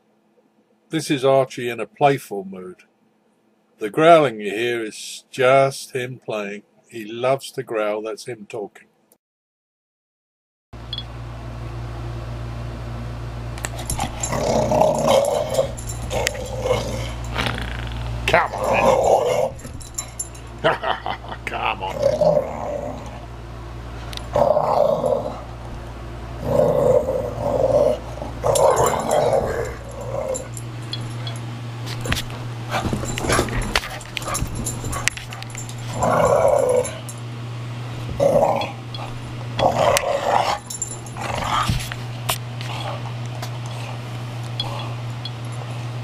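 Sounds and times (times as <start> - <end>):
steady low hum: 10.8 - 46.0
dog growling in play: 13.7 - 23.3, 24.1 - 25.6, 26.4 - 37.2, 37.8 - 46.0.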